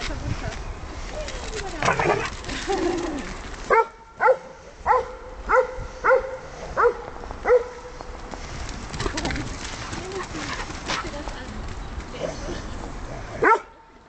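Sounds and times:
dog barking: 0:03.7 - 0:07.8, 0:13.4 - 0:13.7.

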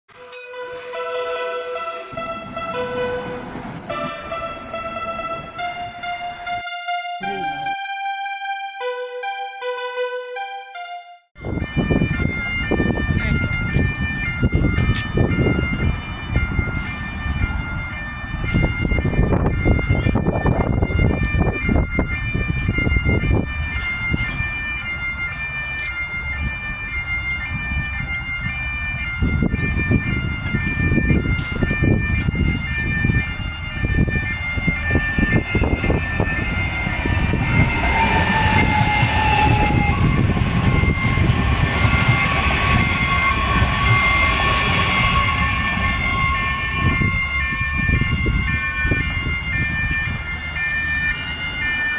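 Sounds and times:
train whine falling in pitch: 0:00.1 - 0:12.1, 0:29.2 - 0:50.3
train wheels rumbling on track: 0:00.2 - 0:06.7, 0:25.2 - 0:51.9
electronic tones: 0:00.2 - 0:11.3.

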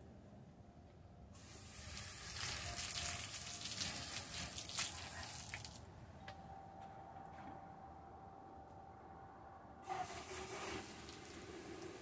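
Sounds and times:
water running from hose: 0:01.4 - 0:05.8, 0:10.0 - 0:12.0.

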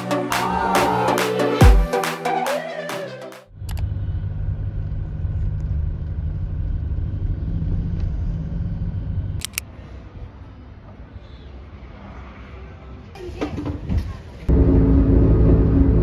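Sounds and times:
road rumble inside car: 0:03.6 - 0:09.4
clicks: 0:09.4 - 0:09.6.

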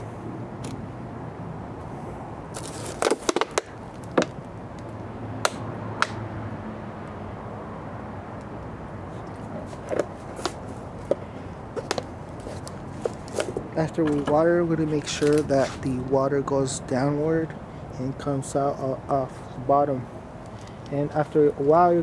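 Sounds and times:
plastic bottle crinkling: 0:02.5 - 0:04.4.

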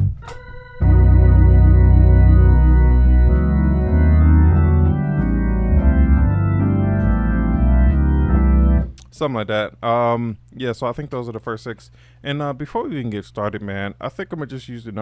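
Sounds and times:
organ bass pedal notes: 0:00.0 - 0:09.0
organ chords through rotating speaker: 0:00.0 - 0:09.0.

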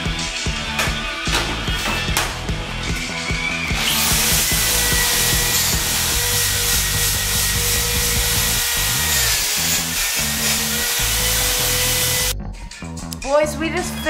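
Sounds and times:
wire brush drill scouring metal: 0:03.0 - 0:12.3.

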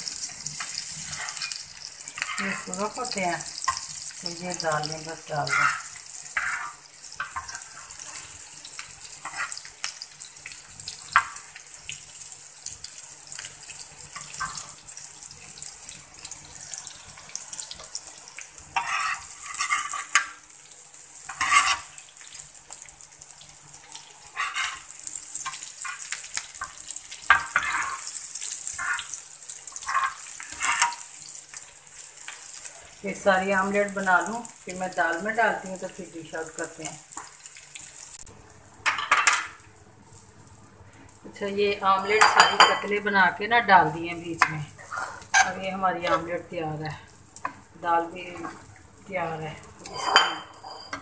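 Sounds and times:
eggs sizzling in hot oil: 0:00.0 - 0:51.0
metal spatula scraping pan: 0:00.1 - 0:03.1, 0:04.8 - 0:08.3, 0:09.2 - 0:09.6, 0:18.8 - 0:20.3, 0:21.3 - 0:22.0, 0:24.3 - 0:26.0, 0:27.3 - 0:31.0, 0:44.4 - 0:46.4, 0:49.8 - 0:51.0.

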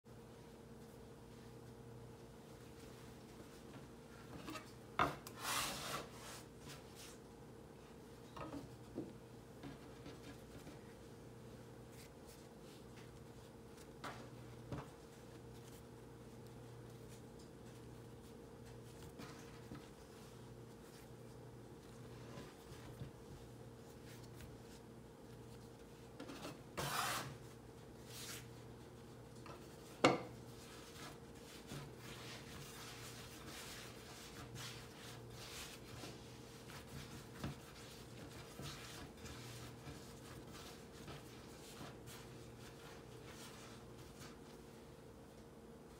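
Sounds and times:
faint steady hum: 0:00.1 - 0:45.9
hands rubbing dough on wood: 0:02.4 - 0:07.2, 0:07.9 - 0:44.9
scraper scraping wooden board: 0:26.2 - 0:27.4
hands tapping and rubbing dough: 0:28.0 - 0:44.6.

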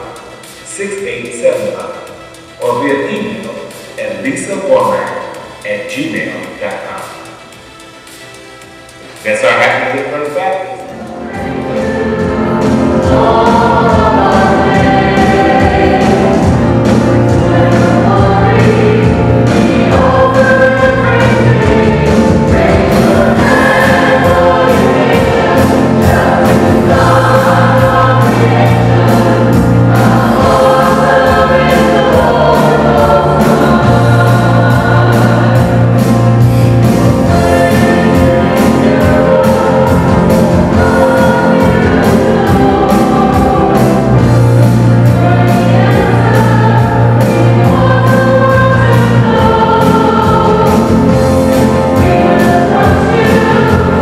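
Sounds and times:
choir singing worship song: 0:00.0 - 0:08.3, 0:08.9 - 0:54.0
instrumental accompaniment: 0:00.0 - 0:54.0
long held bass notes: 0:10.9 - 0:54.0.

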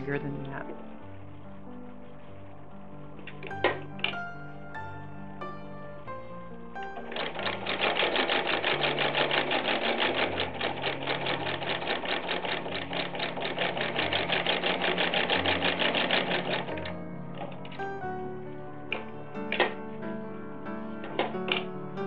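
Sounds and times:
soft background music: 0:00.0 - 0:22.0
sewing machine clattering: 0:02.5 - 0:04.6, 0:07.0 - 0:17.8, 0:18.8 - 0:19.8, 0:21.0 - 0:22.0.

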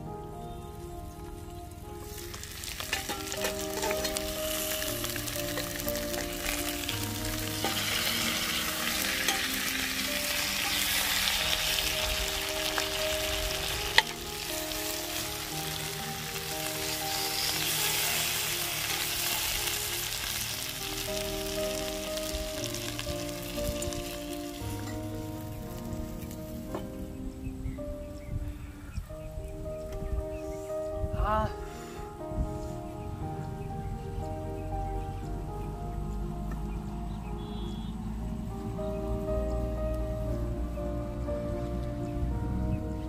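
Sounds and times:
background music with sustained notes: 0:00.0 - 0:43.0
chicken sizzling in a pot: 0:02.1 - 0:26.6.

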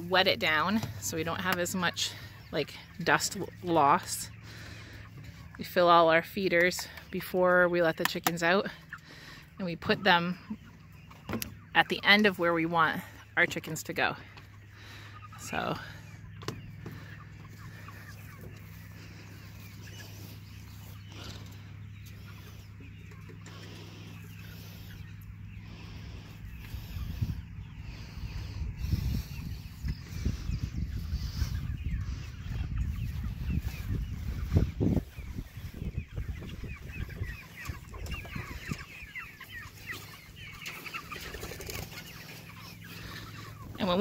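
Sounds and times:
chickens clucking and peeping: 0:00.0 - 0:44.0
steady low hum: 0:14.2 - 0:41.0.

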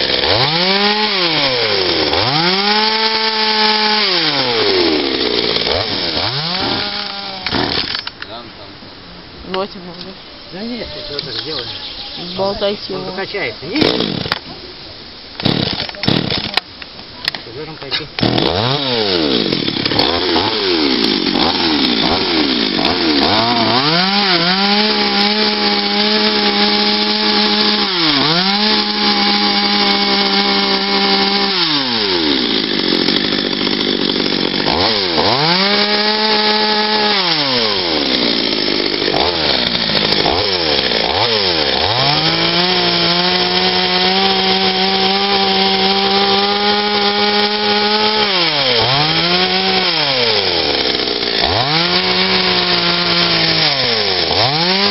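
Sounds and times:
chainsaw cutting wood: 0:00.0 - 0:08.2, 0:11.2 - 0:14.5, 0:15.4 - 0:54.9.

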